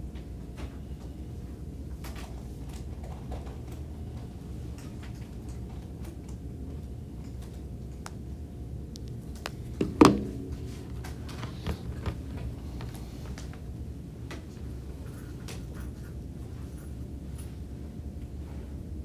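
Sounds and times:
faint clicks and taps: 2.0s - 8.3s, 8.9s - 10.2s
low hum: 3.2s - 19.0s.

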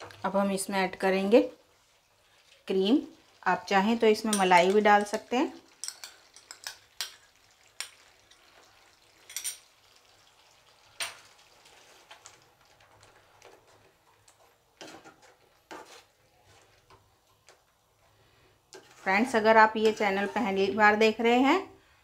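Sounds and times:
metal spoon scraping a pan: 4.2s - 8.5s, 13.4s - 17.0s, 18.7s - 21.0s.

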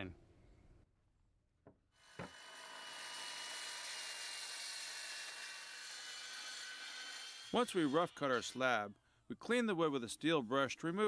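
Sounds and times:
circular saw whining: 2.0s - 8.8s.

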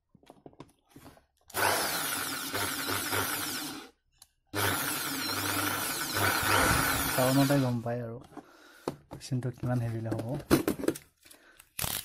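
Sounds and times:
impact drill spinning: 1.0s - 7.8s.

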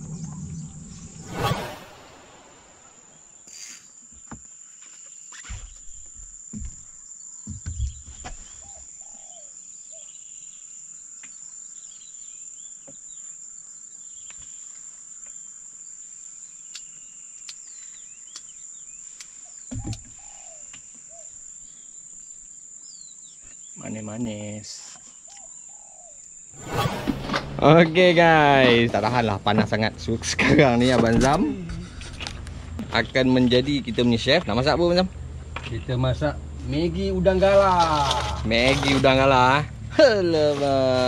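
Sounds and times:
bird chirps: 15.9s - 26.9s.

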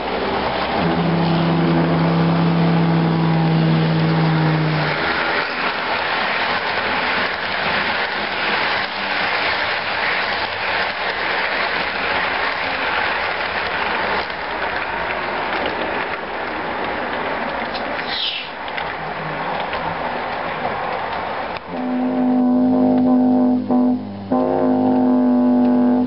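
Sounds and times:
model train wheels clattering: 4.8s - 22.0s.

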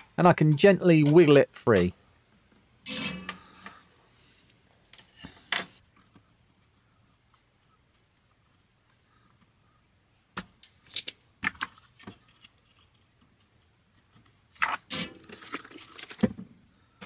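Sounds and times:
metal scraping: 2.8s - 3.8s.

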